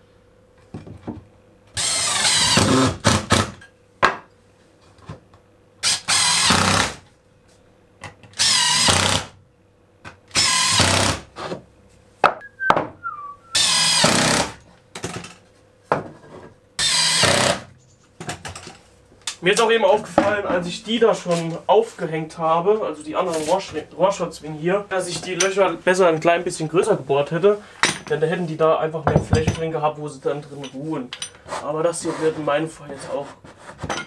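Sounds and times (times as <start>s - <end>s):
cordless drill driving screws: 1.8s - 3.1s, 5.8s - 7.0s, 8.4s - 9.3s, 10.3s - 11.2s, 13.6s - 14.6s, 16.8s - 17.6s.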